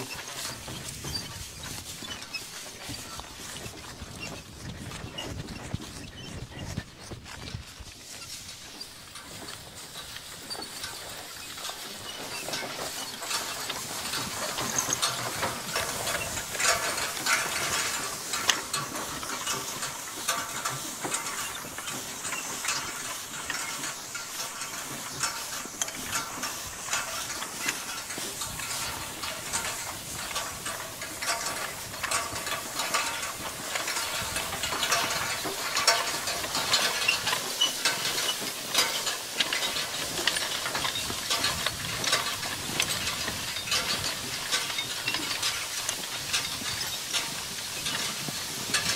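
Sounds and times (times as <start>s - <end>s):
dry hay rustling: 0.0s - 48.9s
hay rake rattling clatter: 0.0s - 48.9s.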